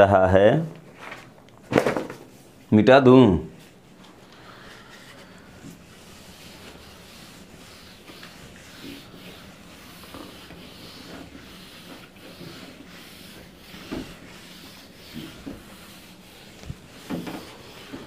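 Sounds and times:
duster rubbing on whiteboard: 4.8s - 18.0s.

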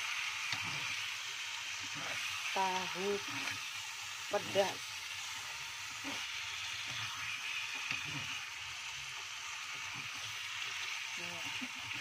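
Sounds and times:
tofu sizzling in a wok: 0.0s - 12.0s.

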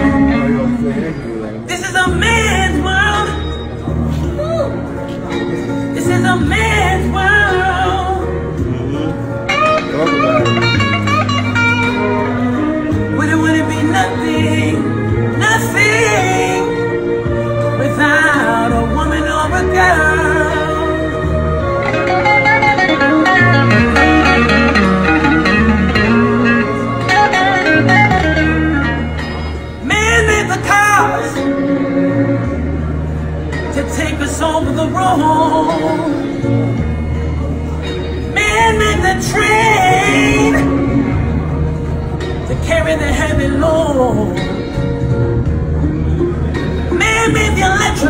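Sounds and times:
bluesy electric guitar: 0.0s - 48.0s
sustained low bass line: 0.0s - 48.0s.

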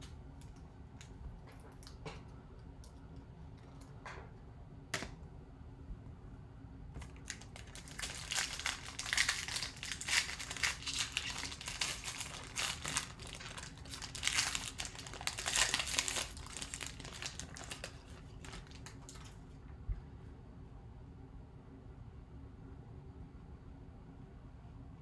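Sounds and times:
foil wrapper crinkling: 7.0s - 19.4s
foil wrapper tearing: 7.0s - 19.4s.

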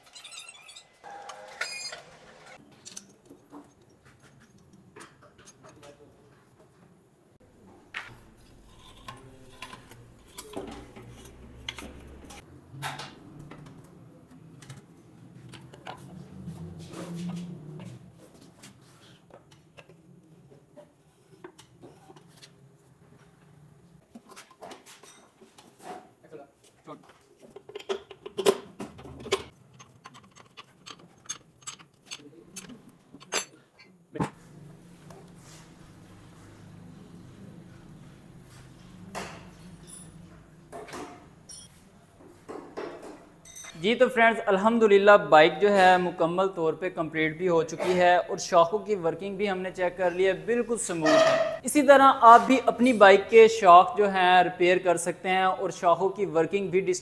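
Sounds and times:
metal clinks and knocks: 27.5s - 33.6s.

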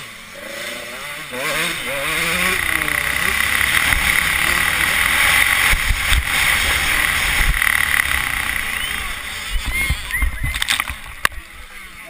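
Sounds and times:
motocross bike engine: 0.0s - 12.0s
low bumps: 1.2s - 11.4s
wind on microphone: 5.2s - 11.4s.

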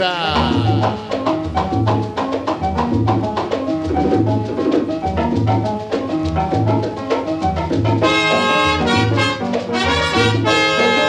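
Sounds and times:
salsa music: 0.0s - 11.0s.

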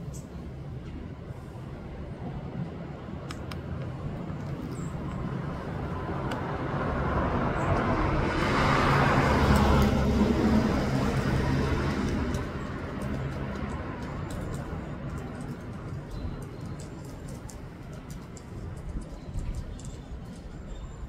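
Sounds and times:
vehicle passing by: 5.3s - 15.2s.

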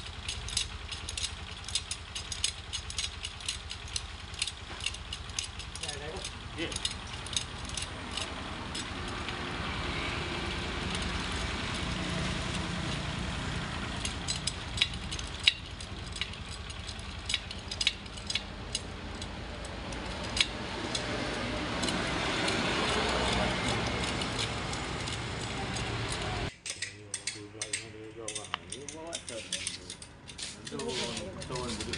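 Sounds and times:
engine idling: 0.0s - 26.6s
metal spokes clicking: 0.0s - 31.9s.

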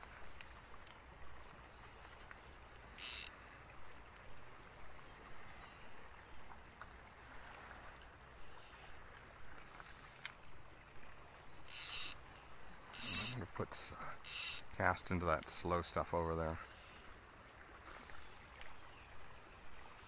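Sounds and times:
fly line pulled by hand: 0.0s - 1.0s, 3.0s - 3.3s, 11.6s - 12.2s, 12.9s - 13.4s, 14.2s - 14.7s
creek flowing faintly: 0.0s - 20.0s
hissing rasps of line drawn: 3.0s - 3.3s, 11.7s - 12.2s, 12.9s - 13.4s, 14.2s - 14.6s.

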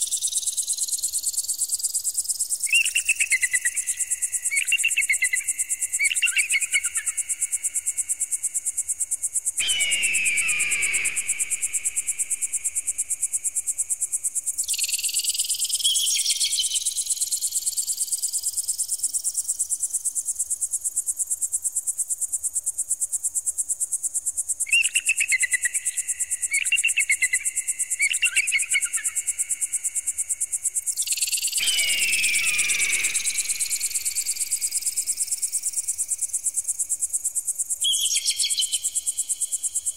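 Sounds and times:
falling electronic screech: 9.7s - 11.8s.

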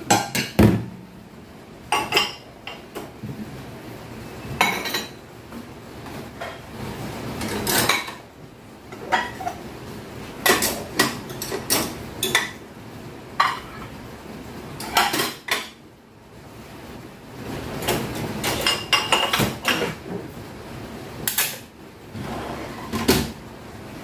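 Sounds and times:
ceramic plates clinking: 4.6s - 5.2s, 9.0s - 9.6s.

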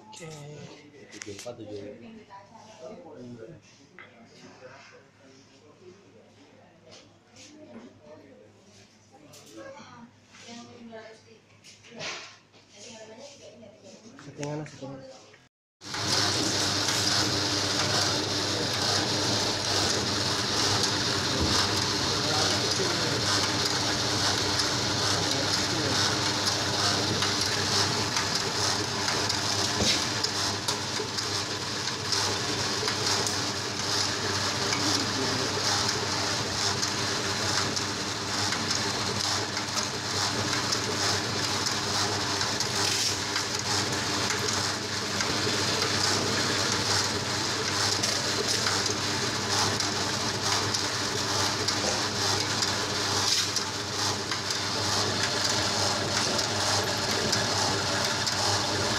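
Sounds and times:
dough divider motor hum: 15.8s - 58.9s.

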